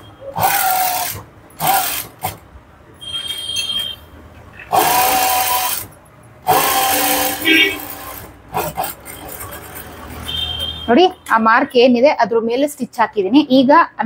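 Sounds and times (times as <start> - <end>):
electric sewing machine stitching: 0.4 - 2.4, 4.7 - 9.9.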